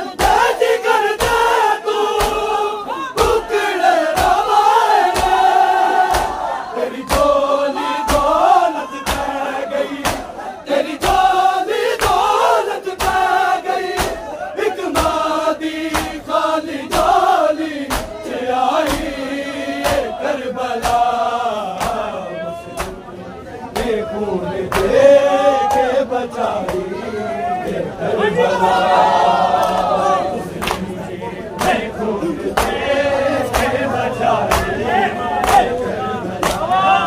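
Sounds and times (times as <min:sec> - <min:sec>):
crowd of men chanting: 0:00.0 - 0:37.0
hands slapping on bare chests: 0:02.2 - 0:02.5, 0:05.1 - 0:05.4, 0:09.0 - 0:09.4, 0:10.0 - 0:10.3, 0:13.9 - 0:14.2, 0:15.9 - 0:16.2, 0:17.9 - 0:18.2, 0:20.8 - 0:21.1, 0:21.8 - 0:22.1, 0:33.5 - 0:33.8, 0:36.4 - 0:36.7.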